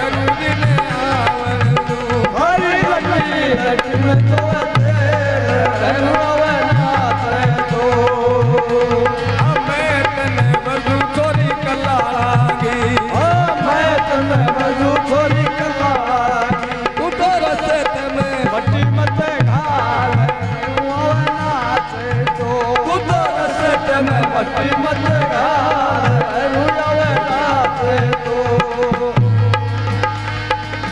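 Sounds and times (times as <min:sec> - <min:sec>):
person singing: 0:00.0 - 0:29.7
dholak drum beat: 0:00.0 - 0:30.9
harmonium: 0:00.0 - 0:30.9.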